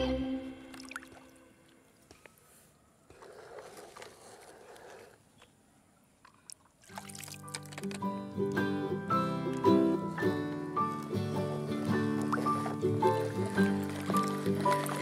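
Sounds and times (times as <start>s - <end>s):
children's music: 0.0s - 0.7s
water sloshing: 0.7s - 5.5s, 6.2s - 8.6s, 9.2s - 15.0s.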